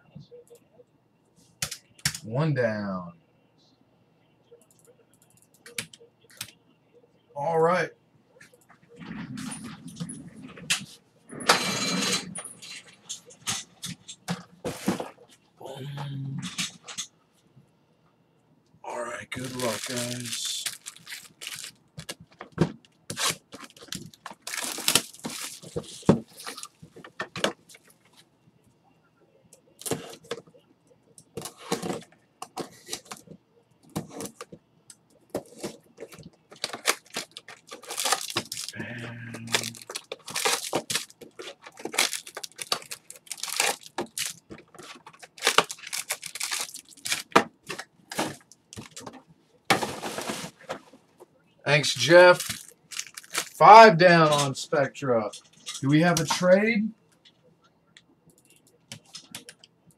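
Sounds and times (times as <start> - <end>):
plastic wrapping crinkling and tearing: 19.3 - 22.3, 23.1 - 26.8, 35.5 - 38.8, 39.4 - 49.0, 52.0 - 53.6
card boxes clicking and rustling: 19.4 - 27.5, 35.3 - 38.8, 39.4 - 50.8, 52.3 - 53.6.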